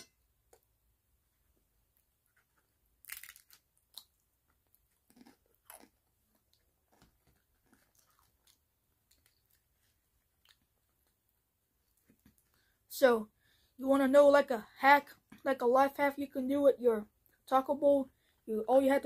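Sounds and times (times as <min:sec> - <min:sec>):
quiet chewing: 0:02.0 - 0:12.6
crispy shell crunching: 0:03.0 - 0:09.7.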